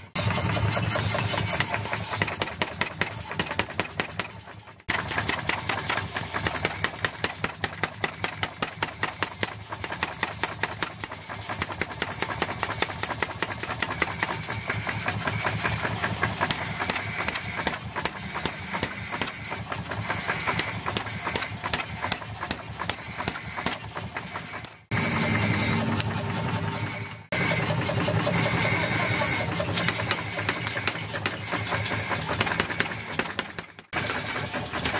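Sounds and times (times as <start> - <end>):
motor running: 0.0 - 34.9
power hammer blows: 0.0 - 34.9.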